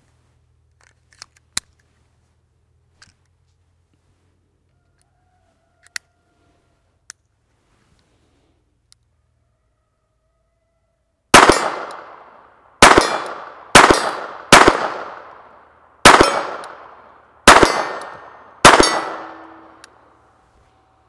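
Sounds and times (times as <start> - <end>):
pistol shots: 11.3 - 19.9.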